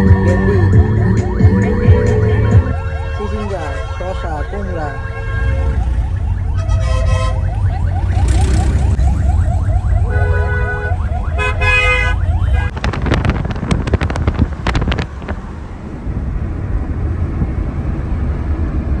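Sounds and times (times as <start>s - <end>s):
vehicle horns honking: 2.0s - 5.9s, 6.5s - 7.5s, 10.0s - 12.7s
engine rumble: 3.8s - 19.0s.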